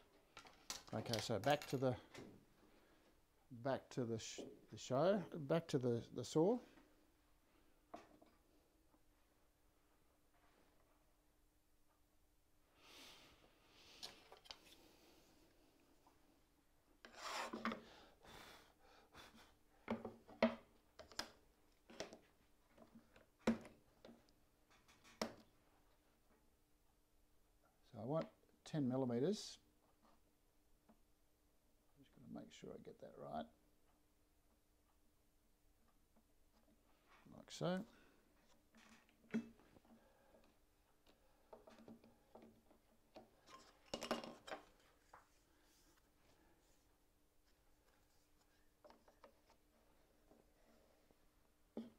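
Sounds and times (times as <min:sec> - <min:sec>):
wood scraping on plywood: 0:17.0 - 0:17.8.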